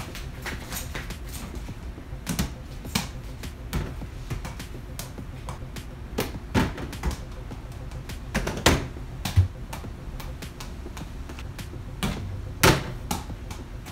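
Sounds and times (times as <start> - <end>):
background music: 0.0 - 13.9
ball knocking on hoop and boxes: 6.2 - 7.2.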